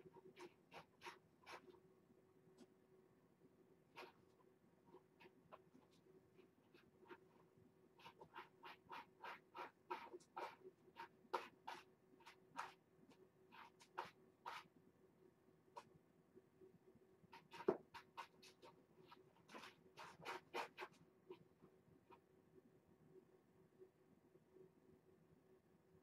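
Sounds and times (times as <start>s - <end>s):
cat scratching litter: 0.0s - 1.8s, 3.9s - 7.4s, 8.0s - 14.7s, 17.3s - 21.4s.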